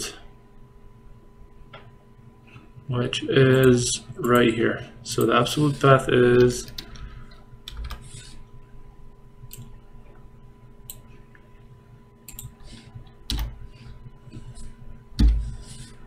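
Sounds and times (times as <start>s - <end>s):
keyboard keystrokes and clicks: 7.7s - 8.0s, 13.3s - 13.5s.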